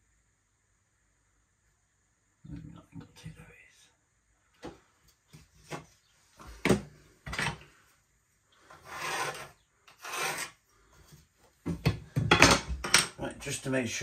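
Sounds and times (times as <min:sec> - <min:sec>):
pencil scratching on wall: 0:08.6 - 0:11.2.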